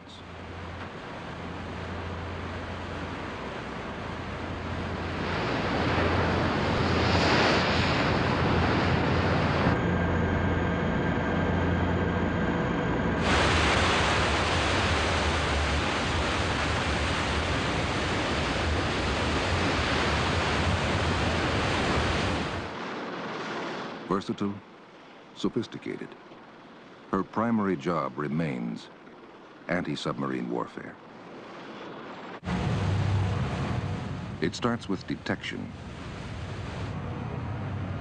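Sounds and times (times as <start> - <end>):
water rushing along ship hull: 0.0 - 9.8, 13.2 - 25.5, 31.5 - 38.0
engine room whining tones: 0.0 - 30.1, 30.9 - 38.0
machinery hum: 0.0 - 38.0.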